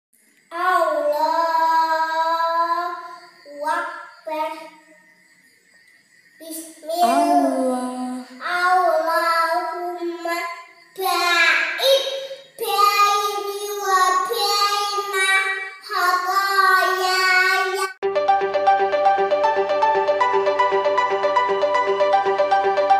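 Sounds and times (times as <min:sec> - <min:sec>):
girl chanting in sing-song melody: 0:00.5 - 0:04.4, 0:06.5 - 0:17.8
electronic music: 0:18.0 - 0:22.9.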